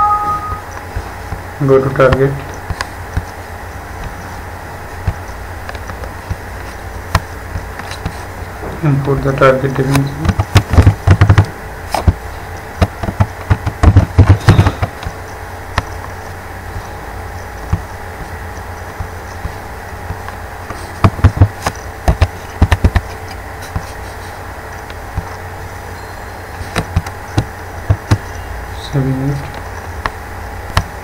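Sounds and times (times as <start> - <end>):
steady electrical hum: 0.0 - 31.0
keyboard keys tapping: 9.8 - 12.2, 12.8 - 15.2, 21.0 - 24.0, 26.6 - 28.4.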